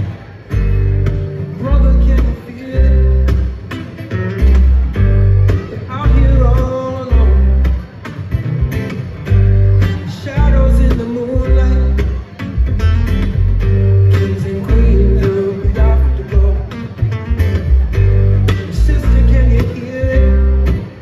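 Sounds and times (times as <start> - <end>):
acoustic guitars strummed and picked: 0.0 - 21.0
upright double bass: 0.0 - 21.0
man singing: 1.5 - 3.6, 5.5 - 7.9, 9.8 - 12.3, 14.1 - 17.2, 18.4 - 21.0.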